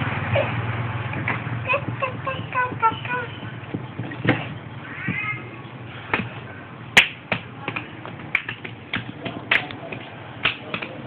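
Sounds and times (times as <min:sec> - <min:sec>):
hands and feet slapping concrete: 0:07.0 - 0:11.0.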